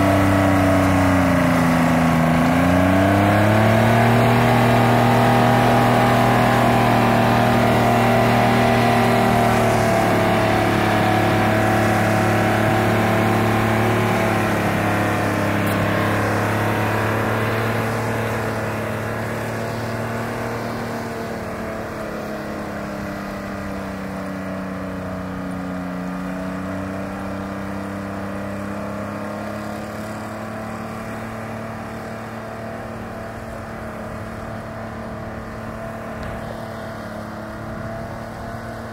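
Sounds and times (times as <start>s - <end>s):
skidder engine under load: 0.0s - 38.9s.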